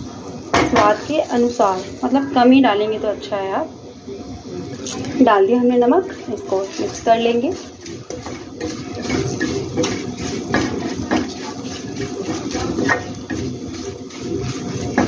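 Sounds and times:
chillies sizzling in oil: 0:00.0 - 0:03.6, 0:04.5 - 0:15.0
spatula scraping a pan: 0:00.6 - 0:02.2, 0:06.0 - 0:15.0.

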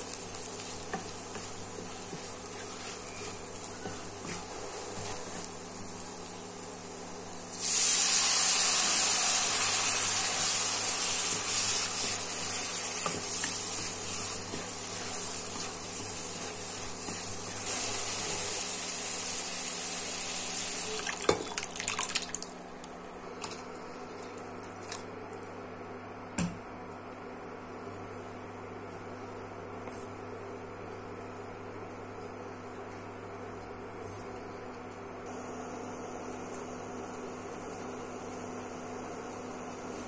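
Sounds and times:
liquid sizzling in hot oil: 0:00.0 - 0:22.5.

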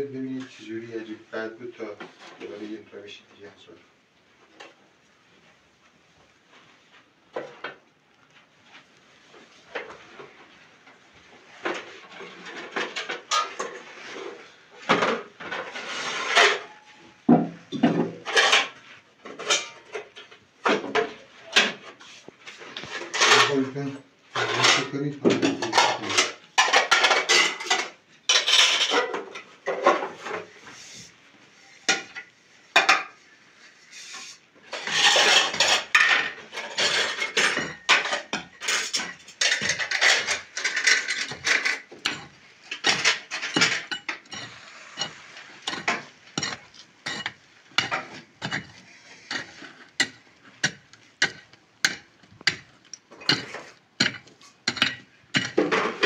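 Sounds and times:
plates and pan clattering: 0:11.6 - 0:22.0, 0:22.6 - 0:30.6, 0:31.8 - 0:33.2, 0:34.0 - 0:56.0.

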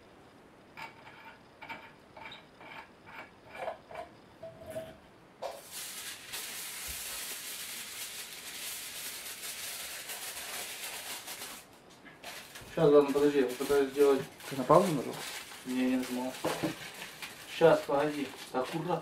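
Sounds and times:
crackly rustling of material: 0:05.6 - 0:19.0.

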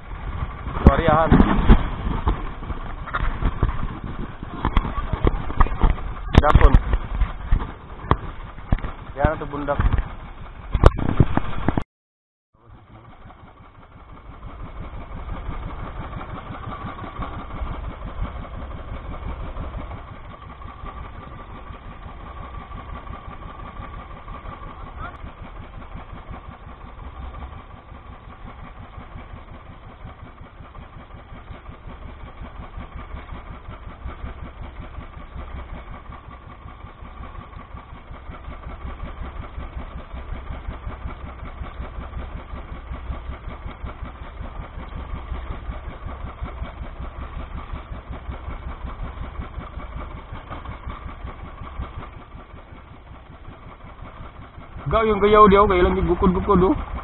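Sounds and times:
boat engine running: 0:00.0 - 0:11.8, 0:12.6 - 0:57.0.

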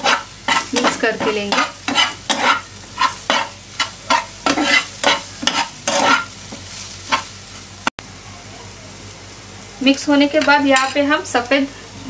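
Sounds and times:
metal spatula scraping frying pan: 0:00.0 - 0:06.4, 0:07.0 - 0:07.3
food sizzling: 0:00.0 - 0:12.0.

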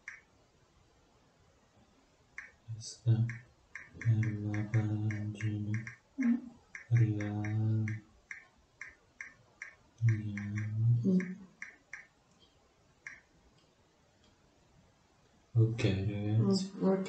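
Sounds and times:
person humming low note: 0:02.7 - 0:03.3, 0:04.0 - 0:05.9, 0:06.9 - 0:08.0, 0:10.0 - 0:11.4, 0:15.6 - 0:16.6.

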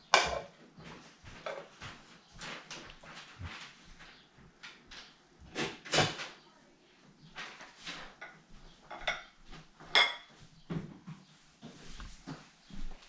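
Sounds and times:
plates and utensils clattering: 0:00.0 - 0:01.8, 0:07.4 - 0:10.9.

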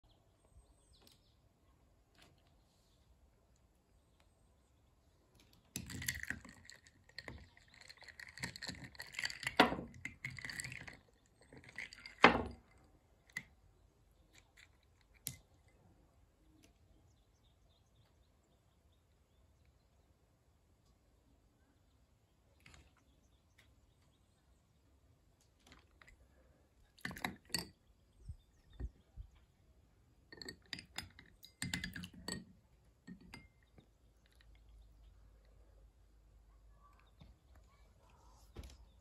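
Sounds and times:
ice cubes clinking against glass: 0:05.8 - 0:12.7, 0:30.3 - 0:32.4.

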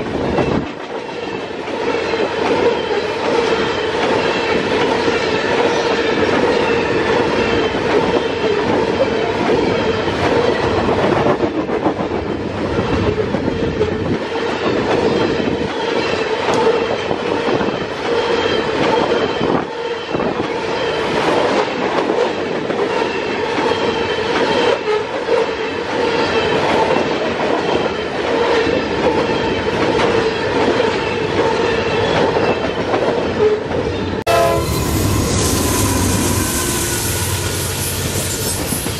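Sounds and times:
train wheels rumbling and clattering: 0:00.0 - 0:38.9
steady whine: 0:34.3 - 0:38.9.

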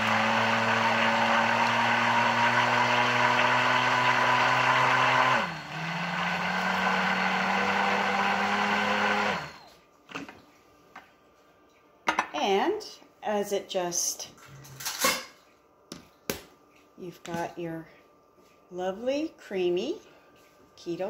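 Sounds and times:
immersion blender motor running: 0:00.0 - 0:09.7.

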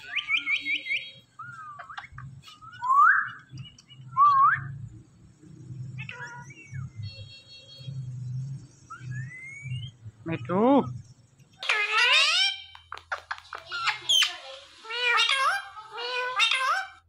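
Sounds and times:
parakeets chirping: 0:00.0 - 0:04.5, 0:05.2 - 0:17.0
parakeet upward-sliding whistles: 0:08.9 - 0:10.0.

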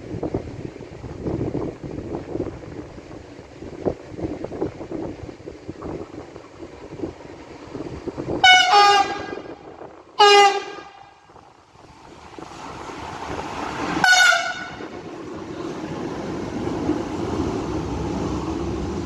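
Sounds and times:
locomotive passing on rails: 0:00.0 - 0:19.0
locomotive horn blasts: 0:08.4 - 0:09.6, 0:10.2 - 0:11.2, 0:14.0 - 0:14.9.

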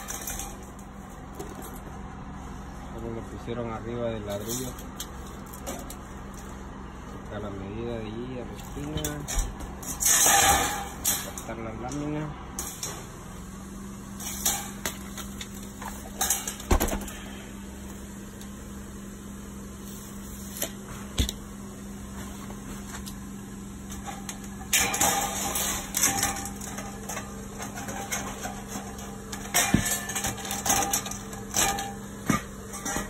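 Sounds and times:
steady low hum: 0:00.0 - 0:33.0
scraping metal rattle: 0:08.7 - 0:11.5, 0:24.0 - 0:33.0.

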